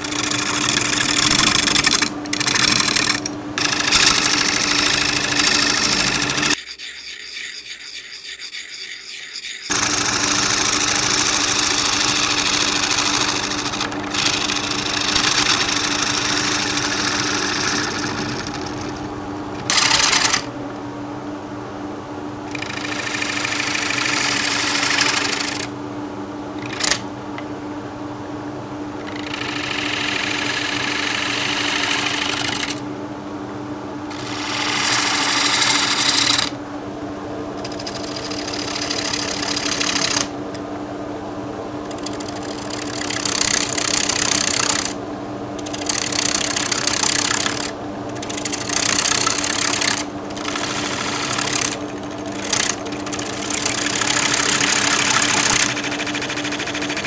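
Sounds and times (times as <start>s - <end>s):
turning tool scraping wood: 0.0s - 20.5s, 26.6s - 27.0s, 34.1s - 36.6s, 41.9s - 45.0s, 45.6s - 57.0s
wood lathe humming: 0.0s - 20.5s, 22.5s - 25.8s, 26.6s - 27.1s, 29.0s - 32.8s, 34.1s - 36.6s, 37.6s - 40.4s, 41.9s - 45.0s, 45.6s - 57.0s.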